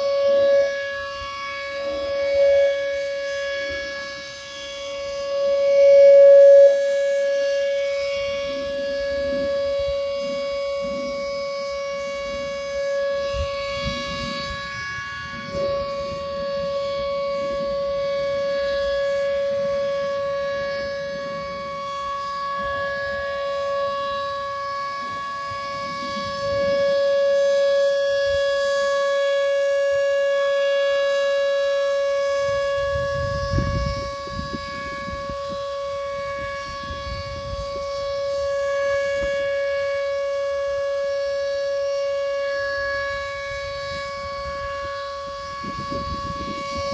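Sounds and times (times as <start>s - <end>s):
warning siren steady tone: 0.0s - 46.9s
low rumble on microphone: 7.8s - 27.3s, 32.3s - 39.4s, 43.4s - 46.9s.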